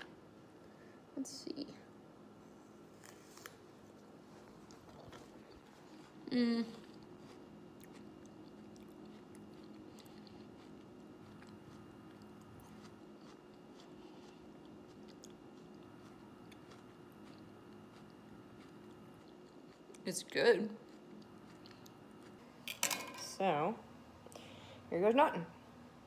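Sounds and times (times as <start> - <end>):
close chewing: 4.3 - 20.1, 20.7 - 22.4.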